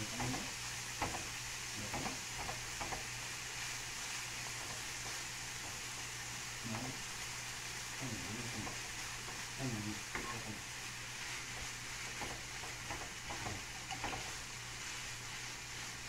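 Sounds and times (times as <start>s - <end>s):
sausage sizzling in a frying pan: 0.0s - 16.0s
spatula scraping a pan: 8.4s - 16.0s.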